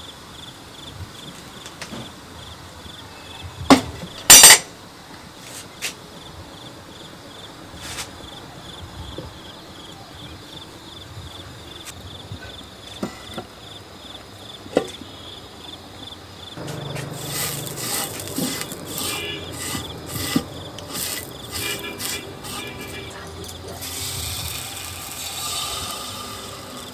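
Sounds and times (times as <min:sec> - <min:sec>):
cricket chirping: 0:00.0 - 0:26.9
rhythmic scraping: 0:16.6 - 0:26.9.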